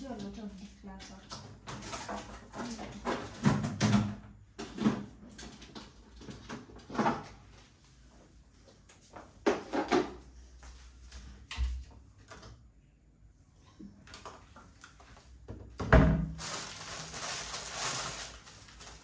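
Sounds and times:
packages knocking and clattering: 1.6 - 7.4, 15.8 - 19.0.

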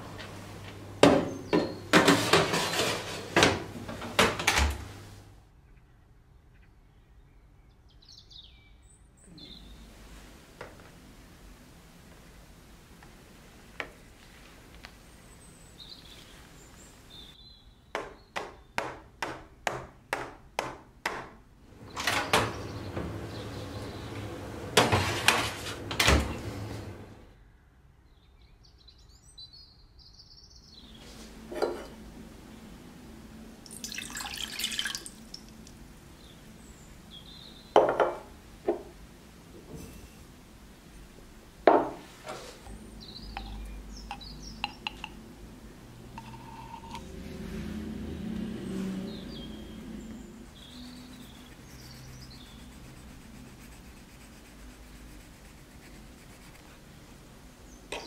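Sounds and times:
oven door rushing and shutting: 21.8 - 27.2
water poured into saucepan: 33.6 - 35.7.

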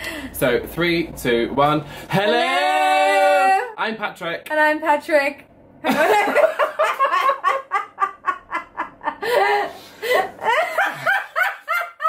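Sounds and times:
man and woman laughing: 5.9 - 12.0.

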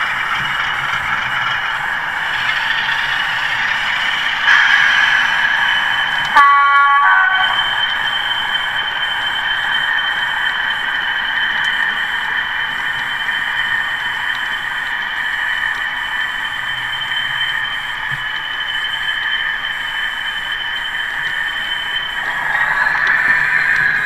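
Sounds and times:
model train horn blast: 6.4 - 7.6.

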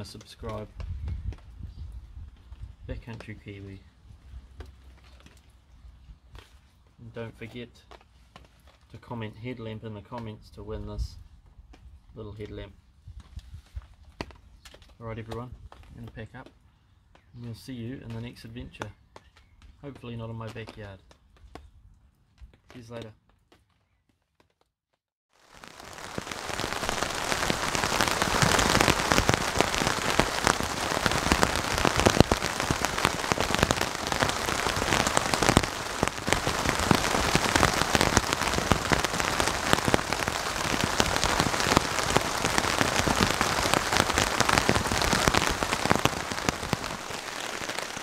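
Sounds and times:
heavy rain falling: 25.4 - 48.0.

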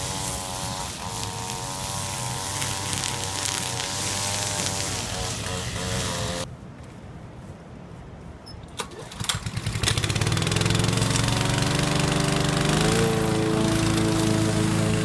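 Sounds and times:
lawn mower engine running: 0.0 - 6.5, 8.8 - 15.0
starter rope rattle: 8.8 - 15.0.

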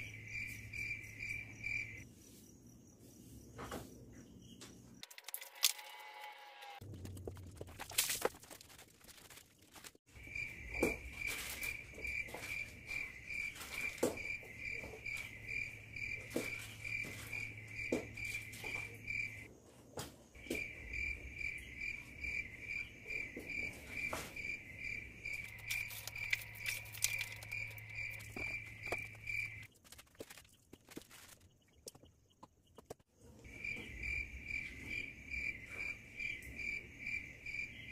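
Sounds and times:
insect chirping trill: 0.0 - 3.5, 10.1 - 19.5, 20.4 - 32.4, 33.4 - 37.9.

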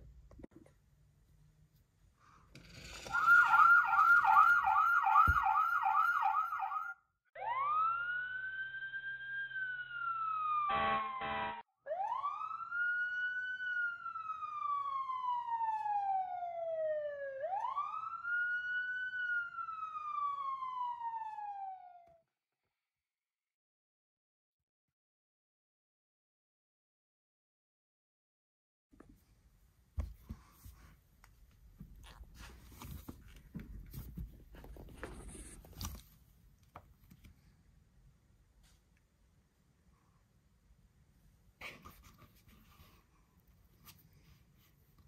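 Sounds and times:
toy electronic siren: 2.9 - 16.4.

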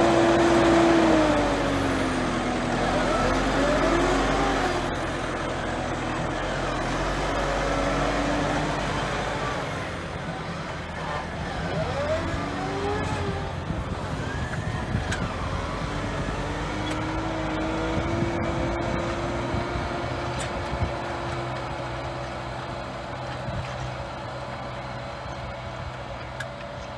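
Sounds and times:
tractor diesel engine under load: 0.0 - 26.9.

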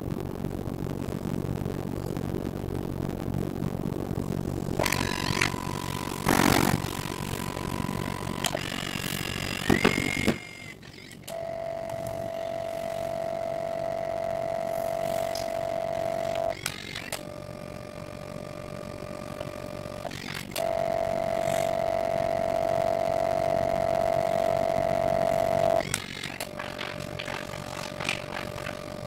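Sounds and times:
photo printer mechanical whine: 4.8 - 29.0
printer paper reversing click: 25.8 - 29.0.

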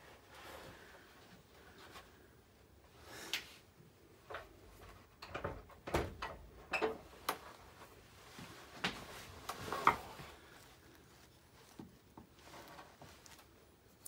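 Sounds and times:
wood shavings brushed: 8.2 - 14.0.

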